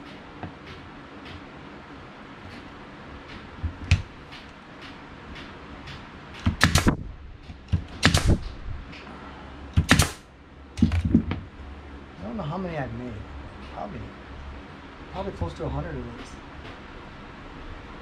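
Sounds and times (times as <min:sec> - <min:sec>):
nail gun firing: 0:06.4 - 0:07.0, 0:07.7 - 0:08.6, 0:09.8 - 0:10.2.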